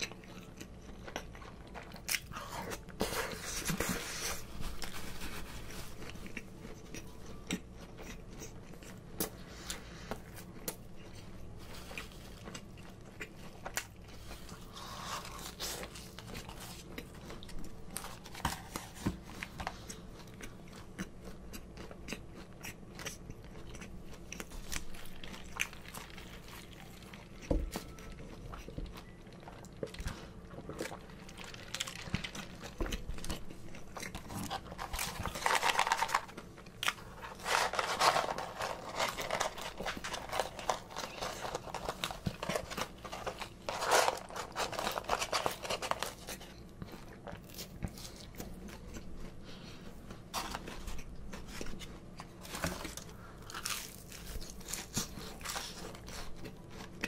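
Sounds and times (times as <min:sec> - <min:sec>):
chewing fried food: 0:00.0 - 0:57.0.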